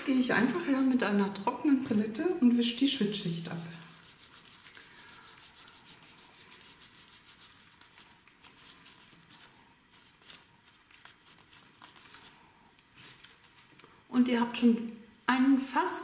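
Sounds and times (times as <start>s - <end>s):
nail pad scrubbing a nail: 3.8s - 12.3s.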